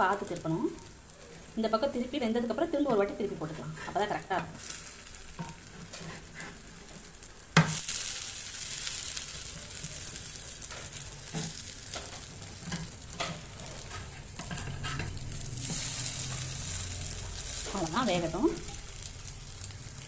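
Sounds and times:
bread sizzling on griddle: 0.0 - 20.0
spatula scraping and tapping pan: 2.8 - 8.0, 8.8 - 17.9.

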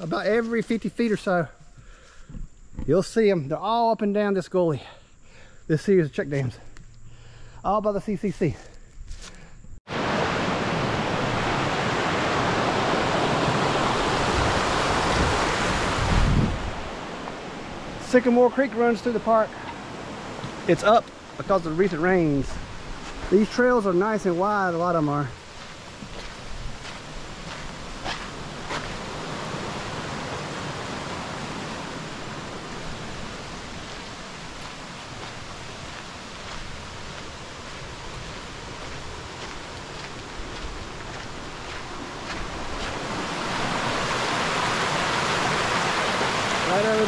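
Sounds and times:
creek rushing: 9.9 - 47.0.

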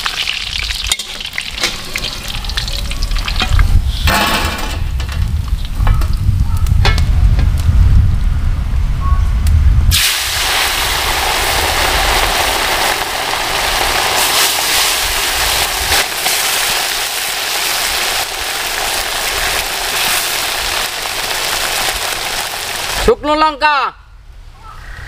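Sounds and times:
hot oil sizzling with frying fish: 0.0 - 4.1, 9.9 - 23.1.

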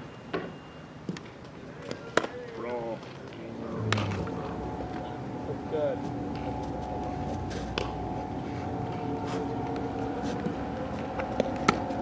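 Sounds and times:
steady low hum: 3.5 - 12.0.

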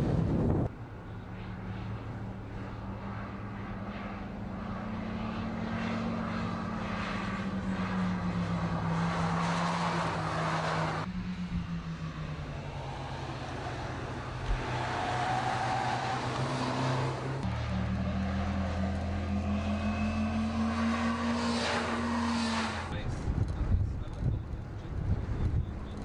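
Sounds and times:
car engine drone: 0.0 - 26.0
tyre and wind noise: 22.9 - 26.0.

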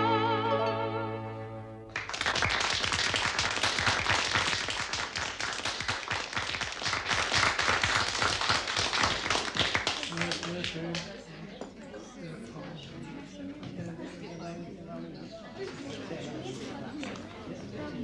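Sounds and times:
audience applause: 1.9 - 11.1.

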